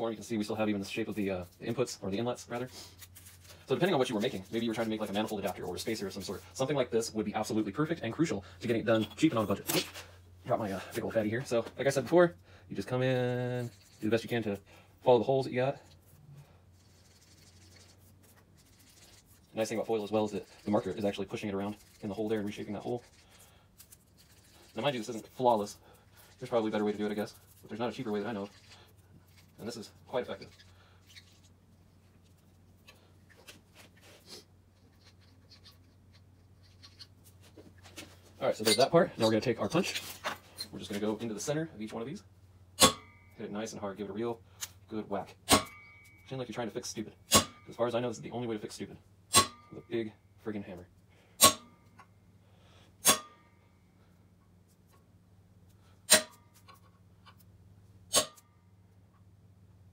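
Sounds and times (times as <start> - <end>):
low steady hum: 0.0 - 59.9
marker scratching on foil: 2.6 - 6.5, 13.5 - 14.6, 15.8 - 31.5, 33.4 - 37.5
hammer striking steel punch: 42.8 - 43.3, 45.5 - 46.2, 47.3 - 47.7, 49.3 - 49.8, 51.4 - 51.8, 53.0 - 53.5, 56.1 - 56.4, 58.1 - 58.5.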